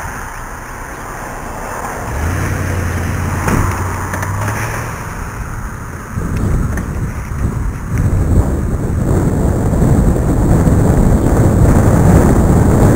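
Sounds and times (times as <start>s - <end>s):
truck engine humming: 0.0s - 11.8s
wind buffeting microphone: 0.0s - 12.9s.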